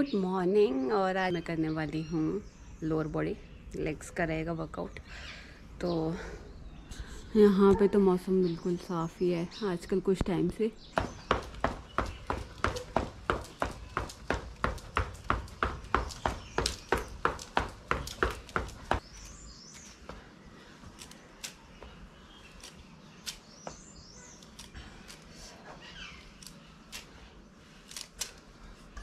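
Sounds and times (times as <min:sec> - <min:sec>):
sneaker footfalls on concrete: 0:10.9 - 0:20.3, 0:22.6 - 0:24.7
faint bird chirps: 0:19.0 - 0:24.8.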